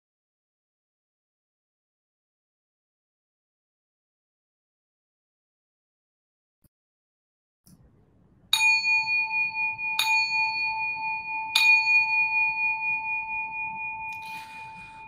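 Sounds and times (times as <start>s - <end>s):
bell chime ringing: 8.6s - 15.0s.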